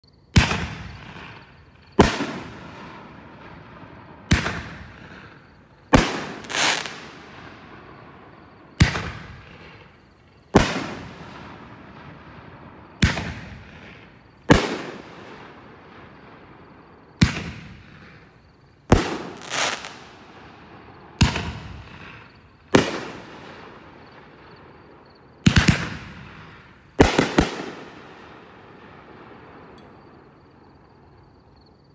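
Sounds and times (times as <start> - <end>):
firework bangs: 0.3 - 30.5
firework hiss and crackle: 0.4 - 16.2, 17.2 - 24.7.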